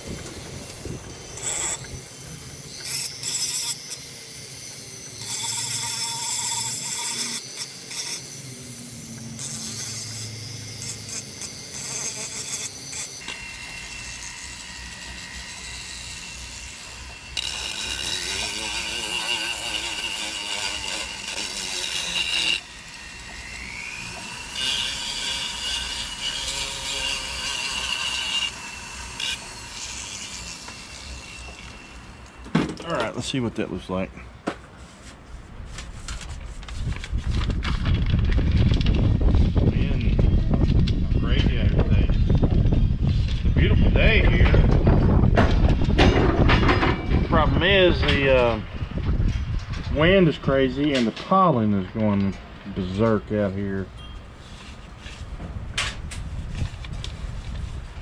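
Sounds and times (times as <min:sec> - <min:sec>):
rotary tool sanding wood: 0:00.0 - 0:32.4.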